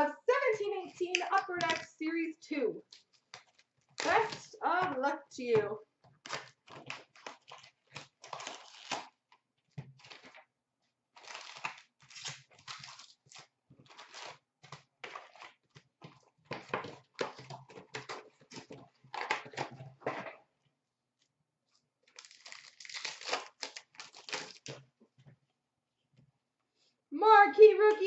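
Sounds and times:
cardboard tearing: 3.0s - 4.6s, 6.2s - 9.2s, 11.1s - 15.5s, 22.1s - 24.8s
wrappers crinkling and rustling: 6.1s - 9.2s, 11.1s - 15.8s, 22.1s - 24.8s.

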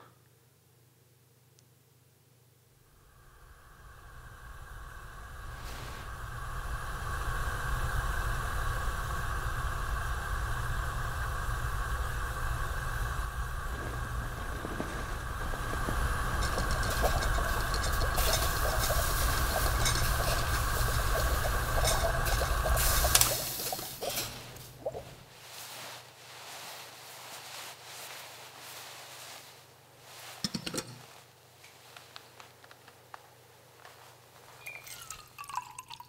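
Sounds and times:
gas burner hissing: 3.0s - 25.4s.

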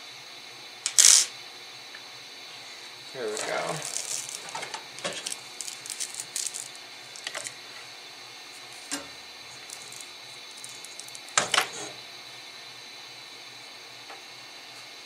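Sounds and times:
steady hiss: 0.0s - 15.0s.

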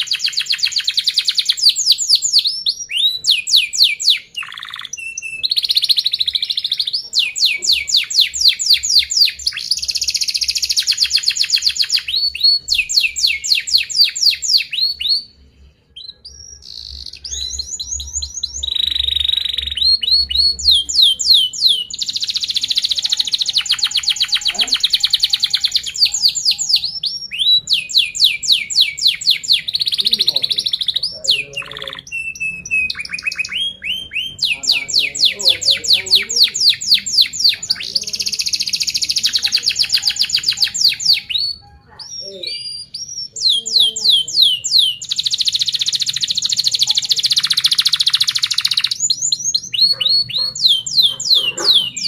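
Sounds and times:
canary singing: 0.0s - 52.0s.

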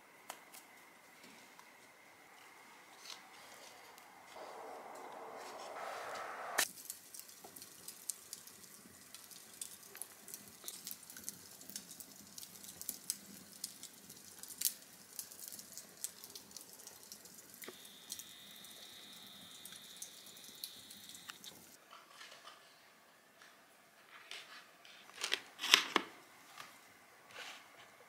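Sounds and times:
faint hiss: 0.0s - 21.8s
embers crackling and popping: 0.2s - 22.2s
thin high whistle: 4.4s - 6.6s.

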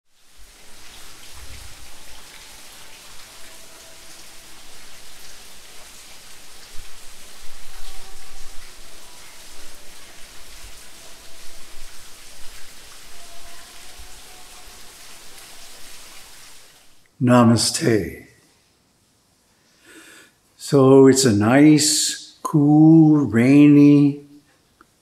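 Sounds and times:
rain on paving and plants: 0.0s - 18.2s, 19.6s - 25.0s
close drips and splashes: 0.1s - 17.2s.

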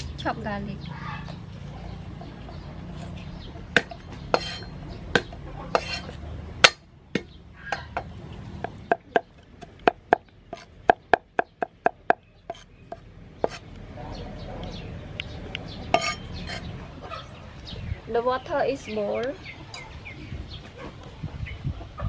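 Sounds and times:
chopping garlic: 3.8s - 13.6s
cleaver knocking on wooden block: 6.6s - 13.6s.

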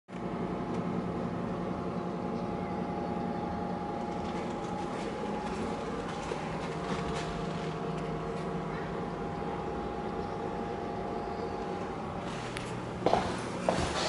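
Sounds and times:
machine hum: 0.1s - 14.0s.

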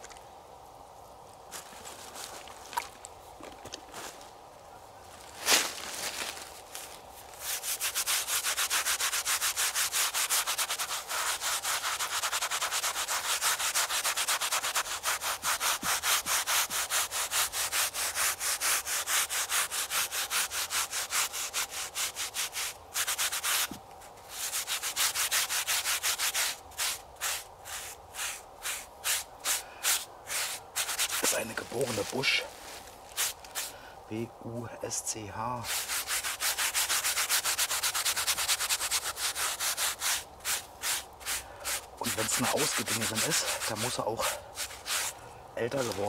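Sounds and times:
scrubbing pad scraping stone: 7.4s - 23.7s, 24.3s - 32.5s, 35.6s - 46.0s.

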